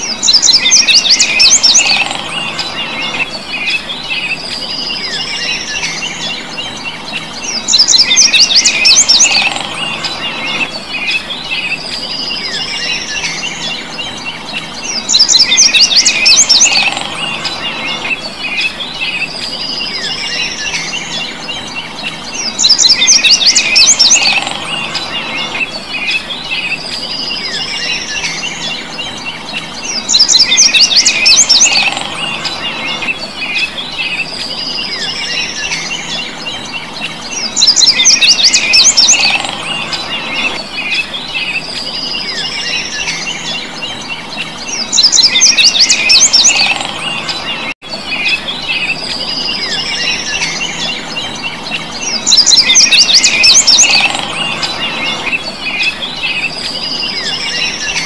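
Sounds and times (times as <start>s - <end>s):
chorus of birds or insects: 0.0s - 58.0s
songbird whistle and trill: 0.0s - 58.0s.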